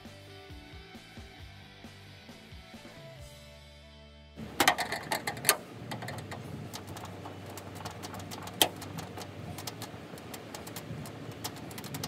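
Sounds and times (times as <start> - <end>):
low steady hum: 4.4 - 12.0.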